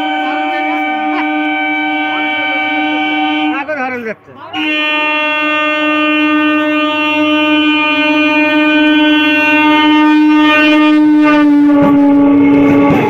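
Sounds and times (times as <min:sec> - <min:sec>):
train horn long blast: 0:00.0 - 0:03.8, 0:04.5 - 0:13.0.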